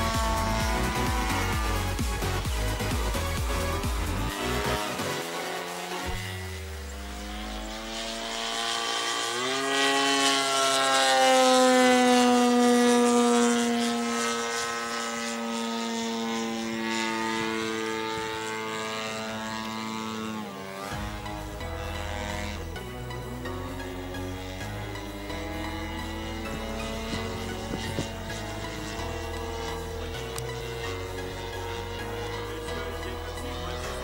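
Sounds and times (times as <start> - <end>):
music: 0.0 - 7.8, 20.8 - 34.0
model plane engine: 0.0 - 34.0.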